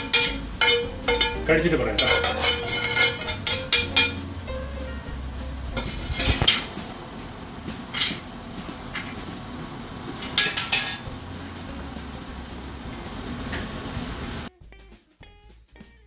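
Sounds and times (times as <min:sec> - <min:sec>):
cookware clinking: 0:00.0 - 0:04.8, 0:10.1 - 0:12.3
low steady hum: 0:00.0 - 0:16.0.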